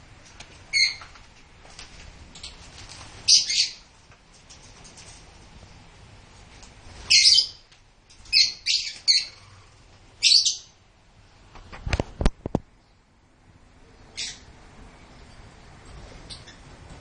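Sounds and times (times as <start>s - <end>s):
birds screeching: 0.7s - 1.0s, 3.3s - 3.9s, 7.1s - 7.6s, 8.2s - 10.7s, 14.1s - 14.5s.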